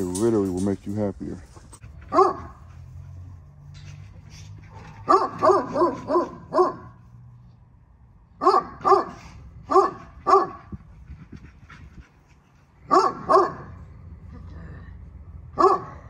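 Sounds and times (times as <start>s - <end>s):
dog barking: 2.1s - 2.6s, 4.7s - 7.0s, 8.4s - 10.7s, 12.9s - 13.8s, 15.6s - 16.0s.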